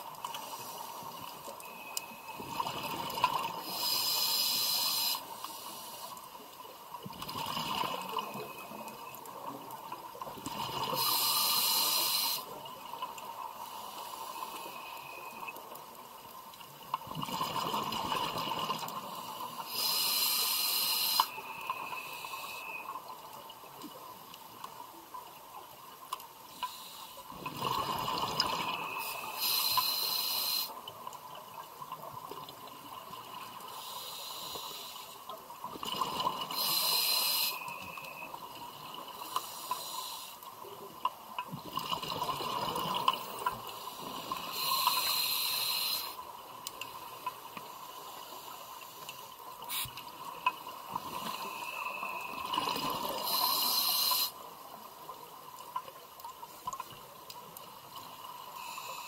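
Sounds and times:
regulator air hiss: 3.6s - 6.2s, 10.9s - 12.6s, 19.3s - 22.8s, 28.9s - 30.8s, 33.7s - 35.2s, 36.6s - 38.2s, 39.2s - 40.4s, 43.8s - 46.2s, 47.8s - 50.0s, 53.2s - 54.4s.

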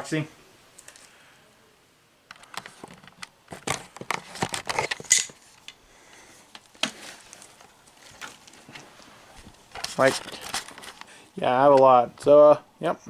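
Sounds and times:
camera handling clicks and rustles: 2.3s - 5.8s, 6.5s - 11.2s.

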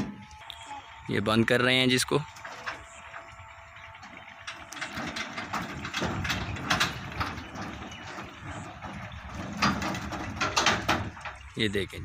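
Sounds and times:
metal frame hinges clattering: 2.0s - 11.6s.

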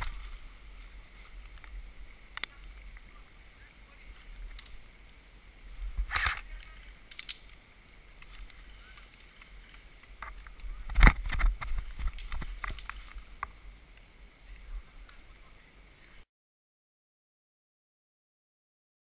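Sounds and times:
low wind rumble: 0.0s - 16.2s.

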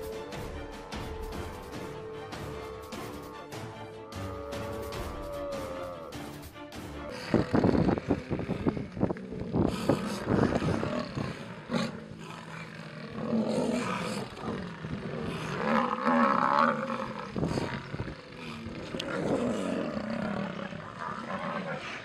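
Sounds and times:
lions snarling and growling: 0.0s - 22.0s.

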